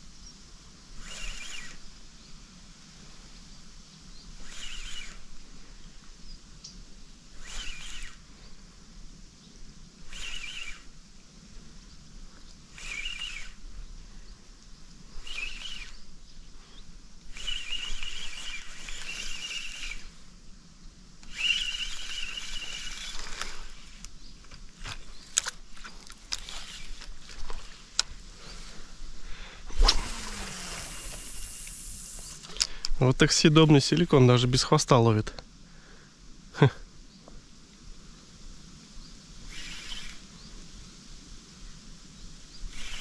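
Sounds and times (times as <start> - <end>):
spinning reel being cranked: 0.9 - 1.9, 4.4 - 5.4, 7.3 - 8.3, 10.0 - 10.9, 12.7 - 13.6, 15.1 - 16.0, 17.3 - 20.2, 21.2 - 24.1, 24.8 - 27.8, 29.7 - 32.7, 39.5 - 40.3, 42.7 - 43.0.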